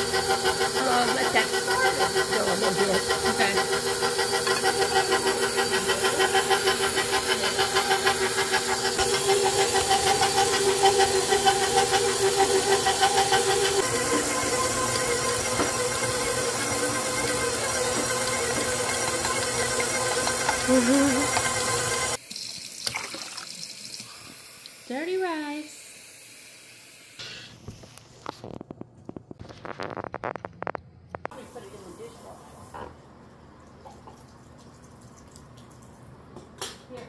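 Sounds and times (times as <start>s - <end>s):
stand mixer motor whine: 0.0s - 22.2s.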